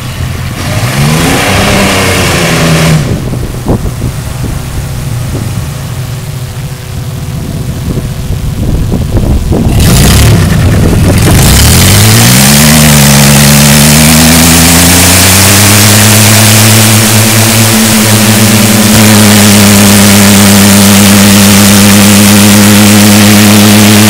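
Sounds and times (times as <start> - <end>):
engine rumbling and revving: 0.0 - 24.0
tyres spinning on asphalt: 9.0 - 24.0.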